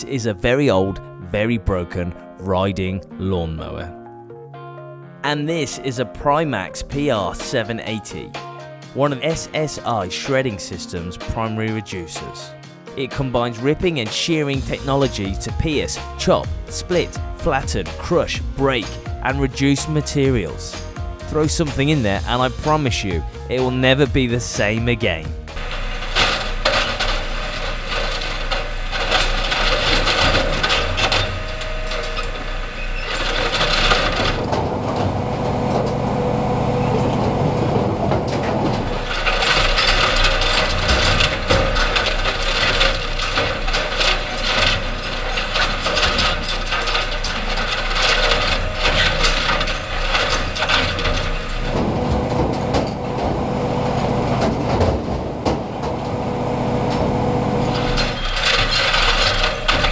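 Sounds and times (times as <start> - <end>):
shredder grinding metal and plastic: 14.5 - 59.9
cracks and bangs of breaking parts: 25.4 - 59.9.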